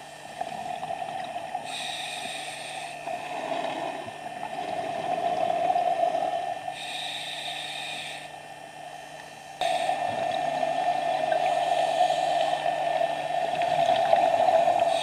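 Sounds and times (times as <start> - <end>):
steady hum: 0.0 - 15.0
regulator inhalation hiss: 1.6 - 4.2, 5.6 - 15.0.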